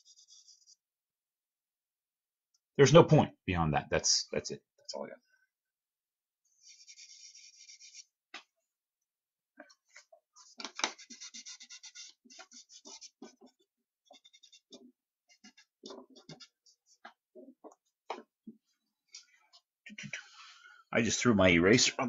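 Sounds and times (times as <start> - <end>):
charcoal scratching on paper: 0.0 - 0.9, 6.5 - 8.2, 10.4 - 17.2.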